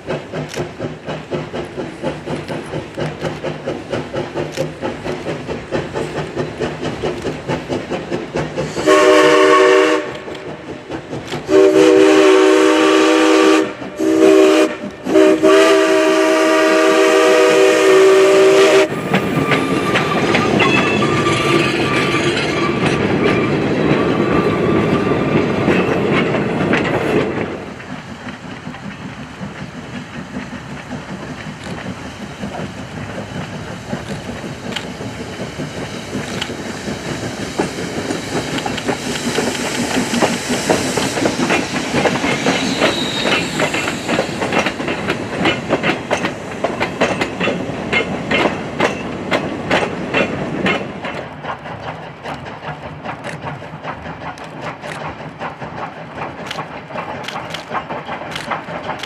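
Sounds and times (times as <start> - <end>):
train wheels clicking over rail joints: 0.0 - 59.0
steam locomotive chime whistle: 8.7 - 10.3, 11.5 - 25.4, 40.2 - 44.7.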